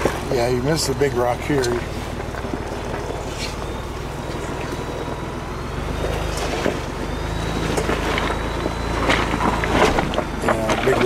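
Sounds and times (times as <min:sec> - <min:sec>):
truck engine running at low speed: 0:00.0 - 0:11.0
knocks and scrapes on rocks: 0:06.0 - 0:11.0.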